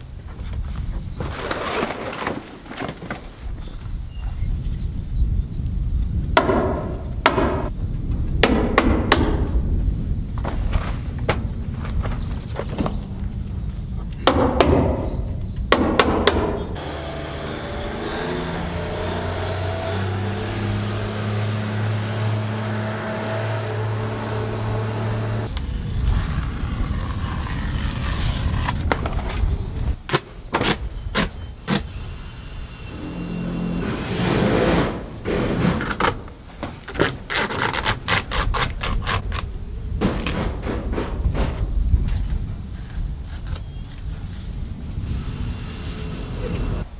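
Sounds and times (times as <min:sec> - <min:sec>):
engine hum: 0:16.2 - 0:30.0, 0:31.9 - 0:36.4.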